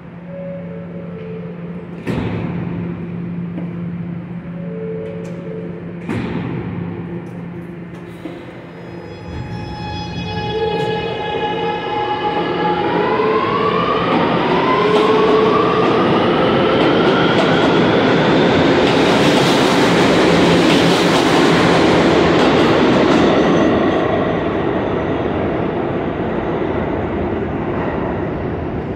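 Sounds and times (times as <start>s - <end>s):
train traction motor whine: 0.0s - 16.5s
train wheels clacking on rails: 1.2s - 8.7s, 14.1s - 24.1s.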